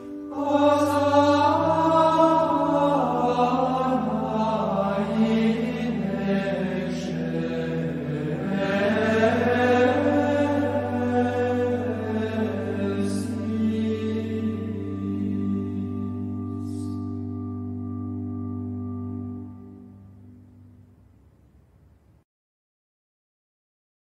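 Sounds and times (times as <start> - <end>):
chant-like singing: 0.0 - 17.2
low drone: 0.0 - 22.2.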